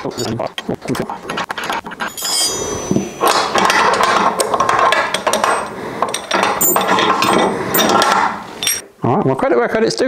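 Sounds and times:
metal tools clinking and clattering: 1.3s - 8.8s.

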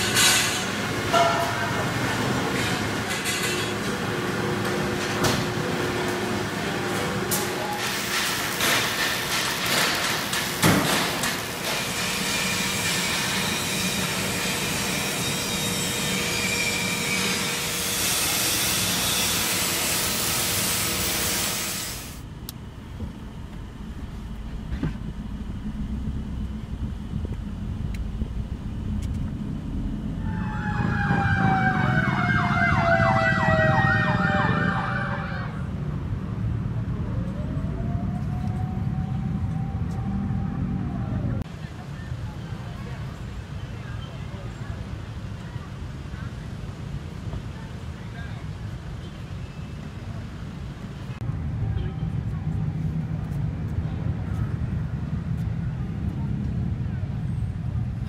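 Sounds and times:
arc welding hiss and crackle: 7.3s - 22.3s
moving van rumble: 22.3s - 58.0s
siren wailing: 30.1s - 35.7s, 36.9s - 41.4s.

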